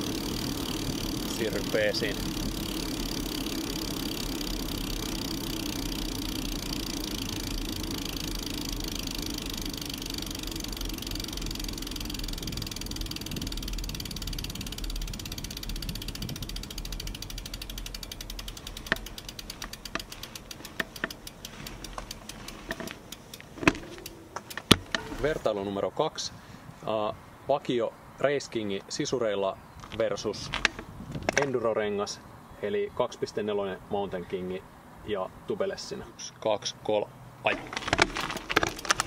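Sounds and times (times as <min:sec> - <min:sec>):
bicycle freewheel buzzing: 0:00.0 - 0:25.1, 0:37.8 - 0:39.0
bike tyres rolling on asphalt: 0:00.0 - 0:25.9, 0:29.6 - 0:31.8, 0:37.4 - 0:39.0.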